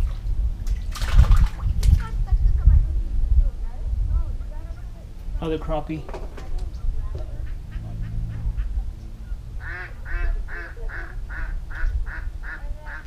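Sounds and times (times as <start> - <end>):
duck quacking: 7.3 - 8.9, 9.6 - 13.0.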